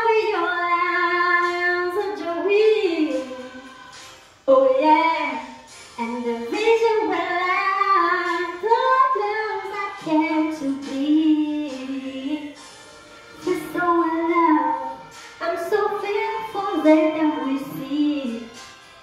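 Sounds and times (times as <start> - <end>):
woman singing solo: 13.4 - 18.5.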